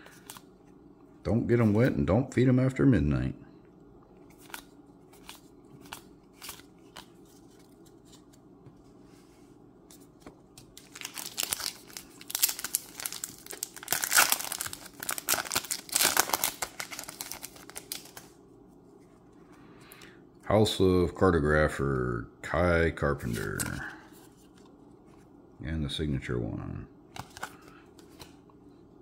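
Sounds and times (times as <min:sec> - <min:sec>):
wrapper tearing and crinkling: 0:10.8 - 0:18.3.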